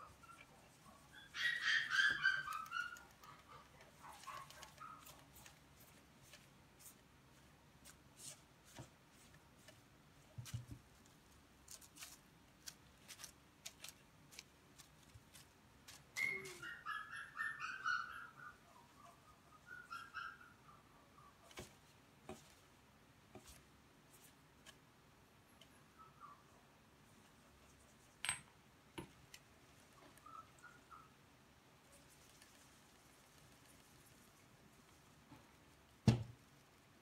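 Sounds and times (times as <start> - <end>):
puppy yelping: 0.0 - 5.2, 16.2 - 21.5, 30.0 - 31.1.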